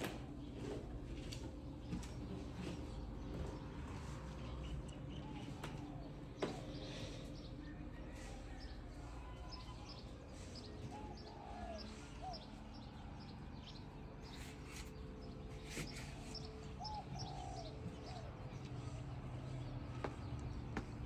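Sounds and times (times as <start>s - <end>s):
birds chirping: 0.0s - 21.0s.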